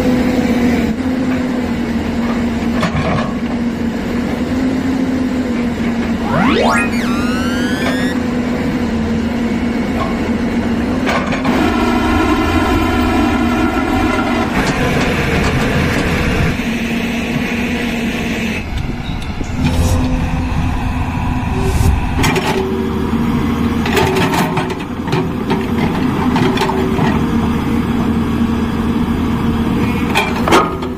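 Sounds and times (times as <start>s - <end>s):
rising synthetic whoosh: 6.2s - 8.2s.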